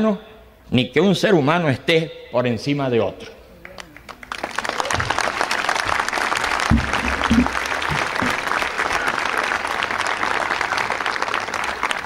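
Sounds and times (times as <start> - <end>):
crowd applauding: 3.6 - 12.0.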